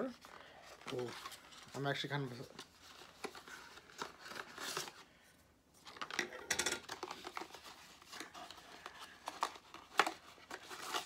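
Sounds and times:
box packaging clicks and scrapes: 5.8 - 11.0.

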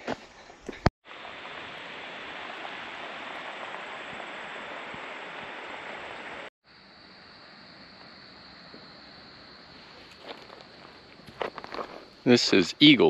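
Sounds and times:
rushing outdoor noise: 1.0 - 7.5.

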